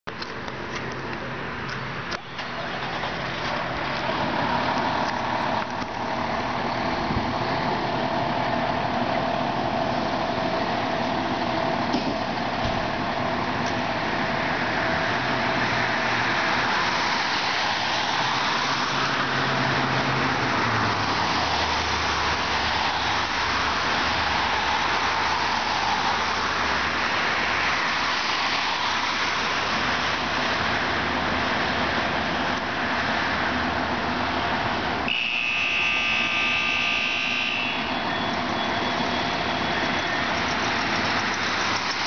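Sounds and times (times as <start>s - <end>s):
fire truck engine idling: 0.1s - 16.6s.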